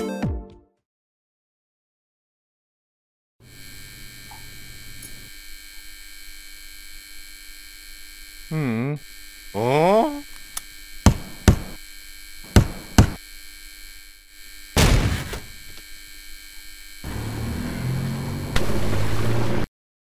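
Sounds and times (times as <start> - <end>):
faint steady hum: 3.4 - 17.2
sharp knocks: 11.0 - 11.8, 12.5 - 13.2
car engine sound effect: 17.1 - 19.7.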